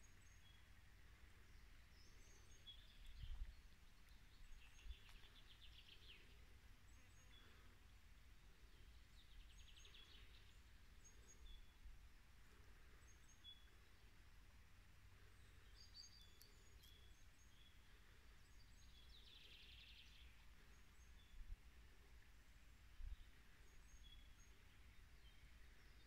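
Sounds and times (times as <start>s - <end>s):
faint high bird chirps: 15.4s - 21.5s.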